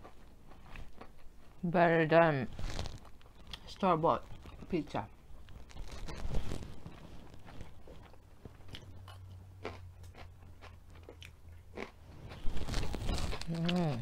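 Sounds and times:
close chewing: 7.2s - 14.0s
crunching bites of bell pepper: 8.0s - 14.0s.

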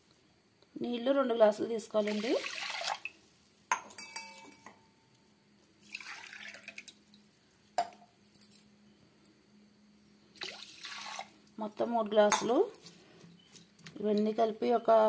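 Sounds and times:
water pouring into pot: 2.0s - 3.2s, 5.8s - 7.3s, 10.4s - 11.6s
metal cup clinking on pot: 3.7s - 4.8s, 12.3s - 12.6s.

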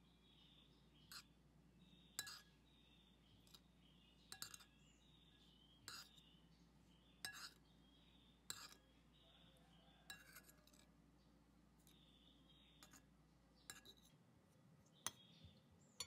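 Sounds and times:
cutlery clinking on ceramic plate: 2.2s - 2.5s, 4.3s - 4.8s, 7.2s - 7.6s, 8.5s - 8.8s, 10.1s - 10.9s.

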